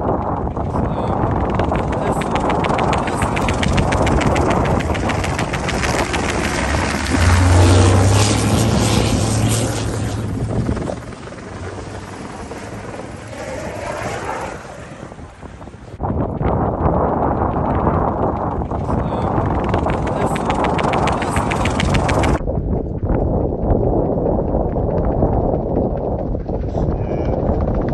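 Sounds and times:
helicopter rotor chopping: 0.0s - 27.9s
diesel truck engine passing: 5.4s - 16.0s.

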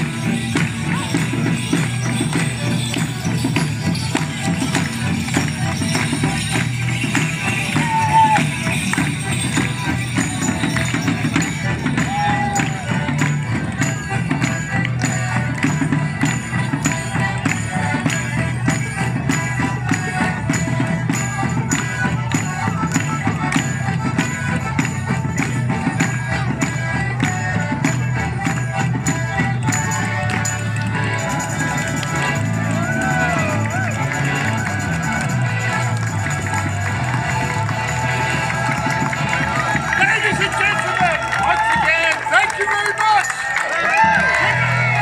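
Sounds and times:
steady drum beat: 0.0s - 42.7s
banjo: 0.0s - 45.0s
melodeons and accordions playing: 0.0s - 45.0s.

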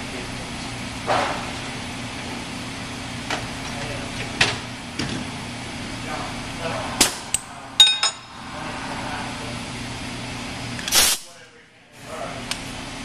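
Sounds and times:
steady shop hum: 0.0s - 13.0s
metal tools clinking on metal: 7.8s - 8.3s.

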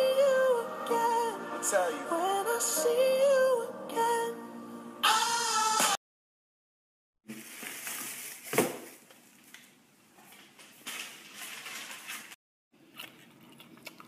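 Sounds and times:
person chewing grapes: 12.8s - 14.0s.

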